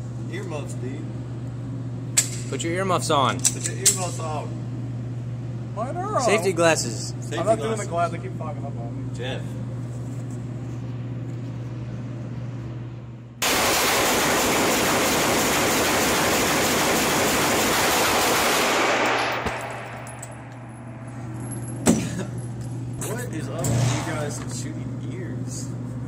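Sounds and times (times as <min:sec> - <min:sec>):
rapid pistol shots: 0:13.4 - 0:20.1.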